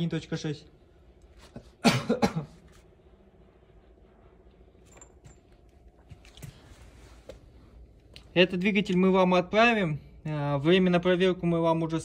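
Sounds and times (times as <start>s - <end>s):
low steady hum: 0.0s - 12.0s
man coughing: 1.5s - 2.8s.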